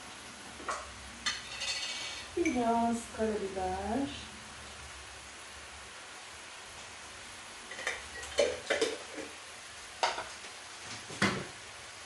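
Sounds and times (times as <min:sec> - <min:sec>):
utensils clinking and knocking: 0:01.2 - 0:02.1.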